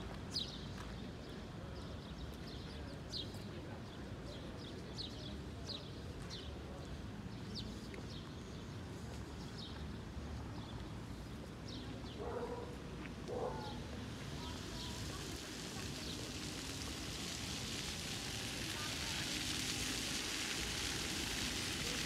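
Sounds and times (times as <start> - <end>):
distant traffic: 11.8 - 22.0.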